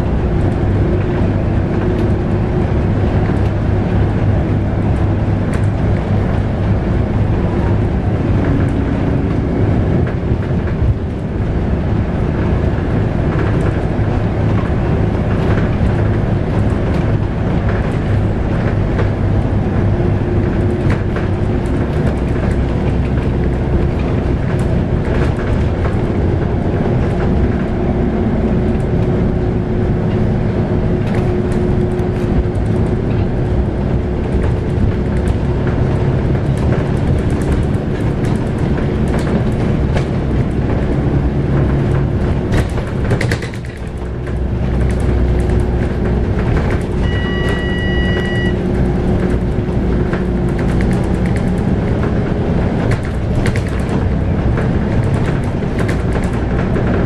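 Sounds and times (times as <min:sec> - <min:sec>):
bus engine drone: 0:00.0 - 0:57.0
road rumble: 0:00.0 - 0:57.0
knocks and rattles: 0:31.0 - 0:47.6, 0:48.8 - 0:57.0
short electronic beep: 0:47.0 - 0:48.6.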